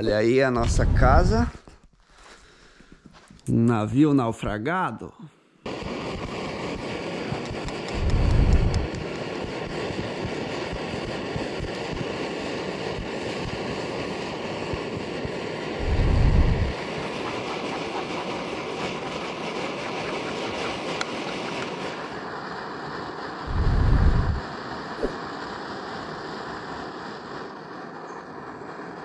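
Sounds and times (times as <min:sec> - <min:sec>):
wind blowing: 0:00.0 - 0:01.6, 0:05.7 - 0:27.6
wind buffeting microphone: 0:00.6 - 0:01.5, 0:07.5 - 0:12.4, 0:13.0 - 0:21.8, 0:23.4 - 0:25.2.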